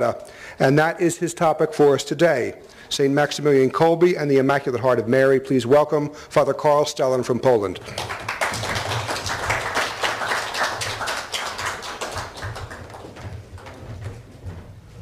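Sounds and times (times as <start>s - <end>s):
audience applauding: 7.8s - 13.8s.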